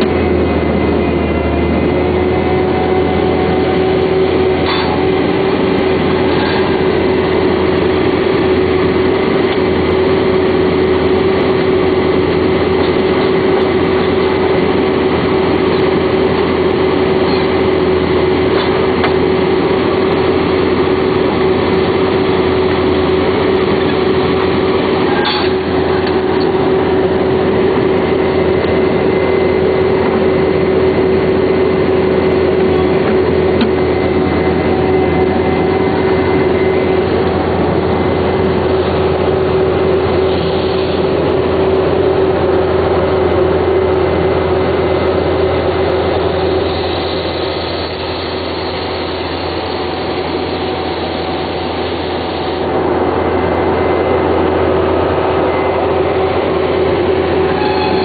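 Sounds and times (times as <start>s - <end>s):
drilling machine engine noise: 0.0s - 58.0s
steady machine whine: 0.0s - 58.0s.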